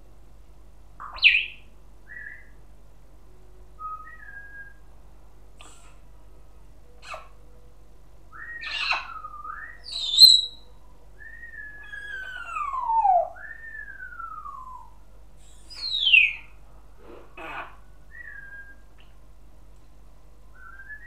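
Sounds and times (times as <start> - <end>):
parrot squawking: 7.0 - 7.3, 8.6 - 9.2, 9.8 - 10.6, 11.8 - 13.4, 17.4 - 17.9
parrot squealing: 7.0 - 7.3, 8.6 - 9.2, 9.8 - 10.6, 11.8 - 13.5, 17.4 - 17.9
parrot whistling: 8.4 - 10.6.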